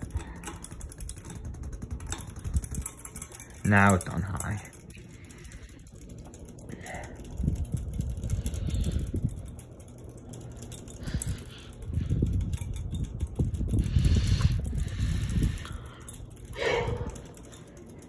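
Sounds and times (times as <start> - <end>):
ceiling fan running: 0.0 - 18.0
gusty wind noise: 7.3 - 9.6, 11.0 - 17.4.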